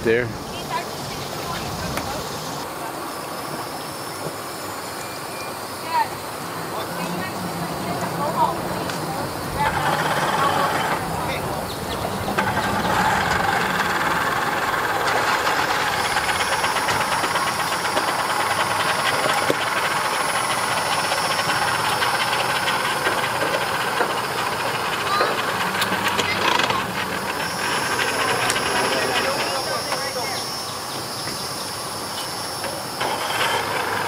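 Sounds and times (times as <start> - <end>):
engine running with pulsing: 6.2 - 34.0
hiss: 12.4 - 34.0.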